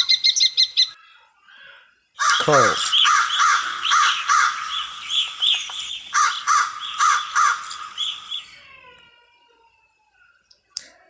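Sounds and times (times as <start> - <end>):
crow cawing: 2.2 - 8.9.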